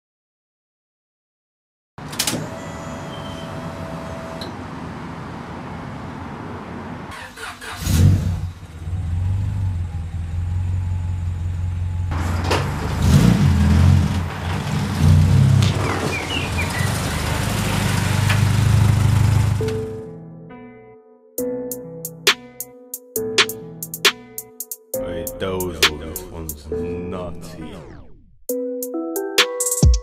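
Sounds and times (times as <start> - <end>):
car engine starting and idling: 4.4 - 20.1
engine revving: 7.1 - 20.0.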